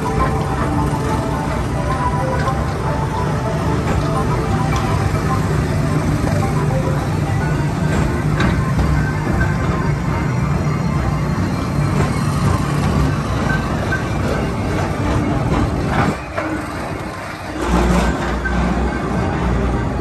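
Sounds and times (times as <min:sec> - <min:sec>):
tram car rumble: 0:00.0 - 0:20.0.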